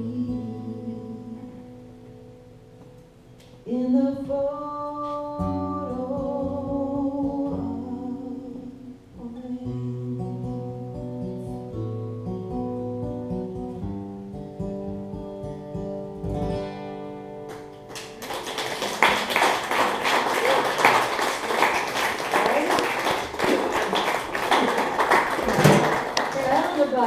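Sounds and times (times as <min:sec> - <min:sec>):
woman singing: 0:00.0 - 0:01.8, 0:03.6 - 0:11.0
acoustic guitars: 0:00.0 - 0:27.0.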